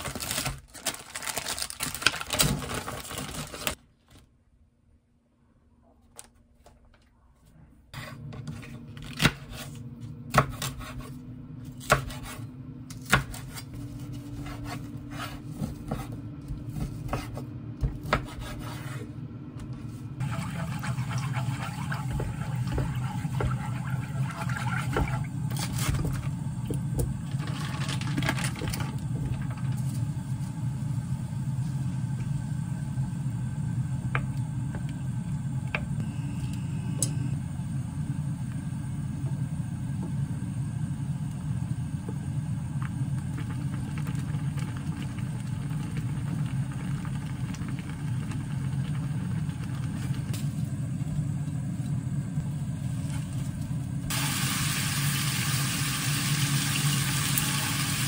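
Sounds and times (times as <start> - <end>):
low hum: 11.1 - 55.1
wooden utensils scraping frying pan: 20.2 - 25.2.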